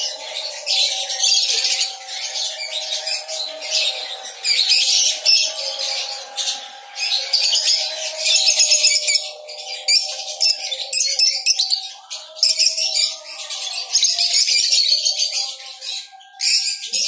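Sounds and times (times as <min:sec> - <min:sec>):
lovebirds chattering: 0:00.0 - 0:17.0.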